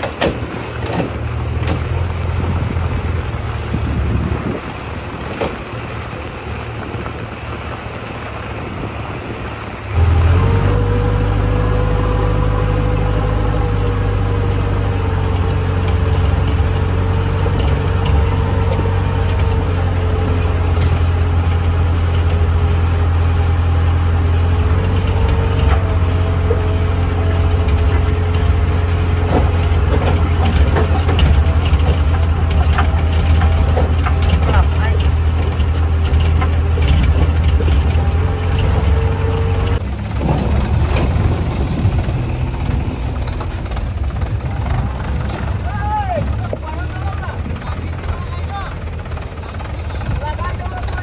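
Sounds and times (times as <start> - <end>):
wind on microphone: 0.0 - 20.7, 35.4 - 45.6
diesel engine droning and whining: 0.0 - 51.0.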